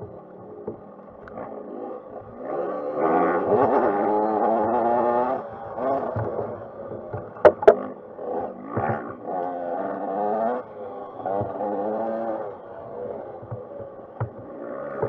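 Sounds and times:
dirt bike engine revving: 0:00.0 - 0:15.0
sharp knocks: 0:07.1 - 0:07.9.

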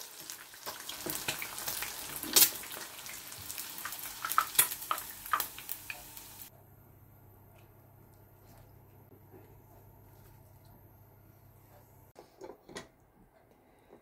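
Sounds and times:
egg sizzling in hot oil: 0:00.0 - 0:06.5.

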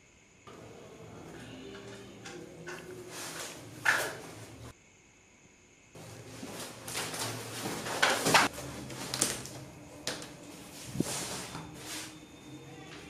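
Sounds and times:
floor mat rustling: 0:06.0 - 0:12.2.

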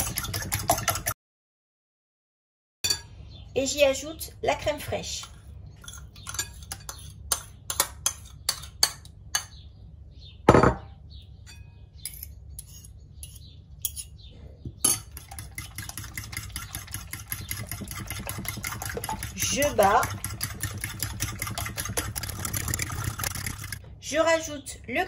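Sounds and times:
fork beating eggs in bowl: 0:00.0 - 0:01.2, 0:05.1 - 0:09.5, 0:14.8 - 0:23.8
bowl set down on worktop: 0:10.5 - 0:10.9.

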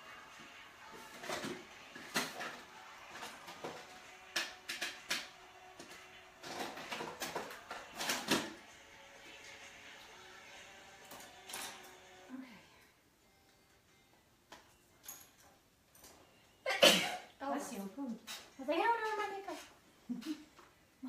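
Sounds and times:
small objects clicking and tapping: 0:03.2 - 0:08.4.

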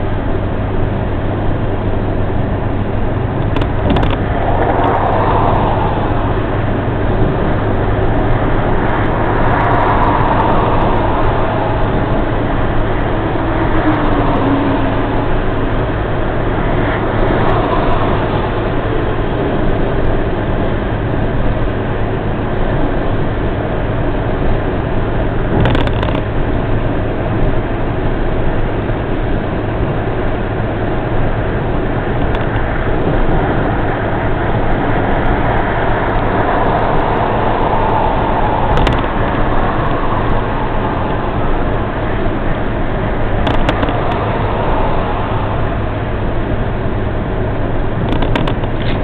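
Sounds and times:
road traffic noise: 0:00.0 - 0:49.0
vehicle passing: 0:04.0 - 0:20.0, 0:32.6 - 0:47.1
sharp clatter: 0:25.5 - 0:26.5, 0:43.1 - 0:44.4, 0:48.0 - 0:49.0.

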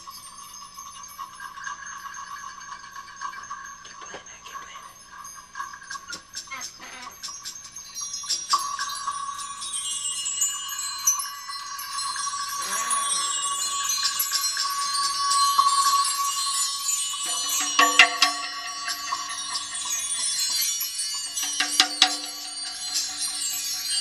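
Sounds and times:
steady ringing tone: 0:00.0 - 0:04.0, 0:07.3 - 0:24.0
bar chimes shimmering tinkling: 0:00.0 - 0:24.0
lower ringing tones: 0:07.3 - 0:24.0
loud struck chime hits: 0:12.6 - 0:24.0.

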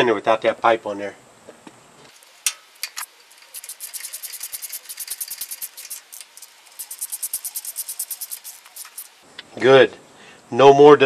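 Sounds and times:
ratchet wrench clicking: 0:02.1 - 0:09.2.

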